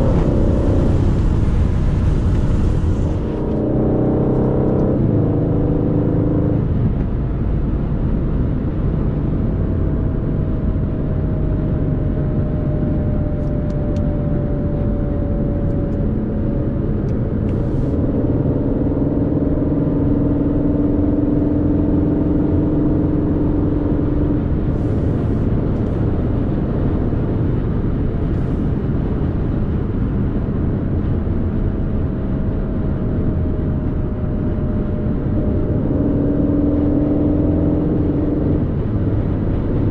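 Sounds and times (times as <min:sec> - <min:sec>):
car engine at steady revs: 0:00.0 - 0:39.9
road and tyre noise: 0:00.0 - 0:39.9.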